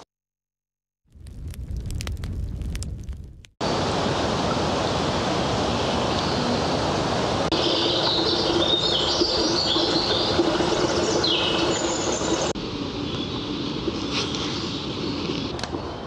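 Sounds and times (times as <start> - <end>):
stream water running: 3.6 - 15.9
birds singing: 7.6 - 12.5.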